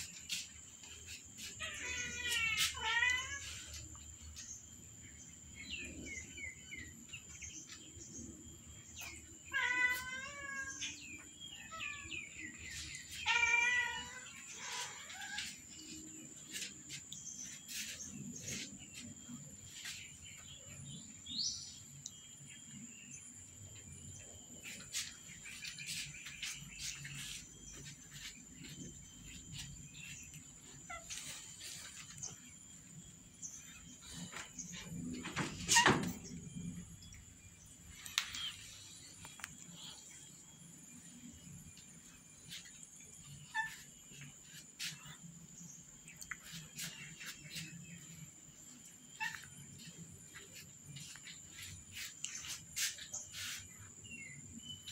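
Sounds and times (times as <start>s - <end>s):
cats meowing: 1.4s - 3.9s, 9.4s - 16.0s.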